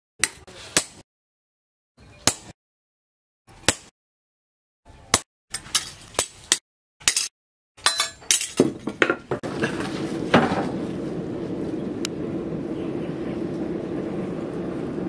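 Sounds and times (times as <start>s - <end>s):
coals crackling: 9.4s - 15.0s
forge fire rushing: 9.4s - 15.0s.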